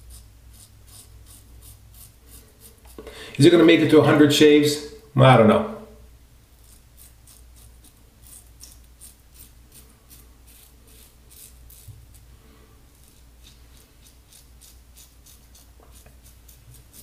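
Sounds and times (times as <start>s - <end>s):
razor scraping stubble: 0.0s - 3.6s, 6.6s - 12.3s, 12.9s - 17.0s.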